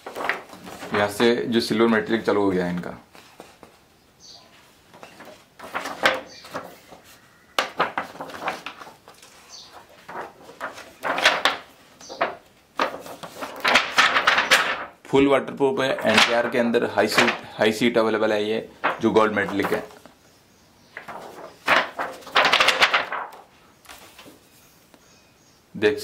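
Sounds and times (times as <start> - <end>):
album pages turning: 0.0 - 3.8, 4.9 - 15.0, 15.8 - 17.5, 18.7 - 20.2, 20.9 - 24.4.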